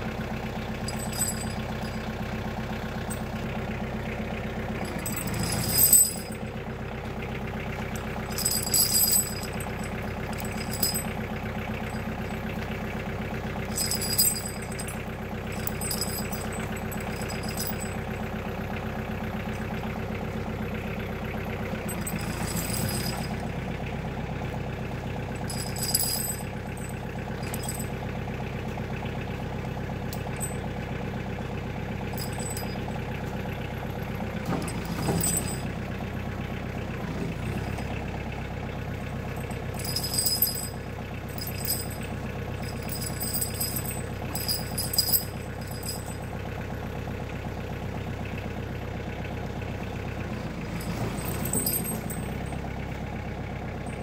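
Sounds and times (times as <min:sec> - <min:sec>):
diesel tractor engine idling: 0:00.0 - 0:54.0
tire chains clinking: 0:00.3 - 0:48.3, 0:49.6 - 0:54.0.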